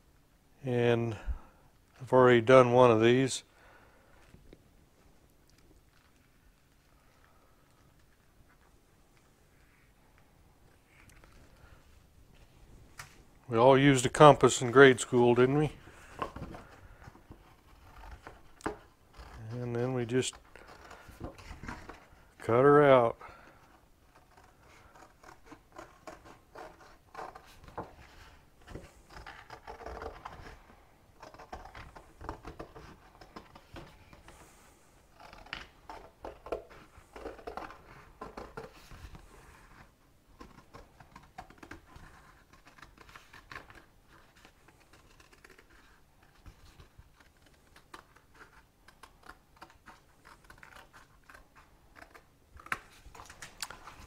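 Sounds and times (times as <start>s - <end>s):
paper rustling: 23.4s - 54.0s
scissors snipping paper: 24.1s - 30.6s, 35.2s - 54.0s.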